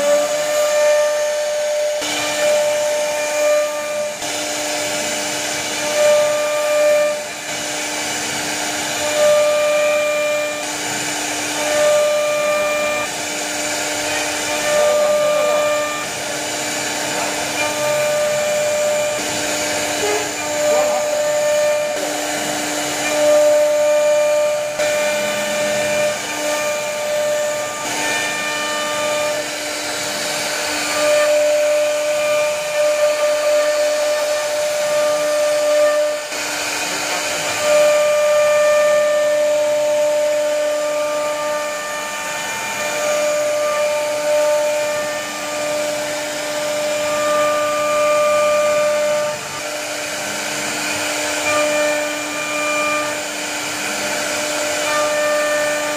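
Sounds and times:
router motor whine: 0.0 - 55.9.

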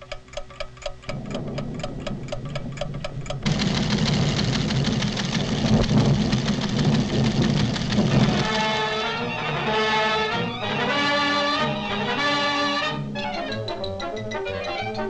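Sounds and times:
clockwork ticking: 0.0 - 9.8
low rumbling: 0.9 - 11.0.

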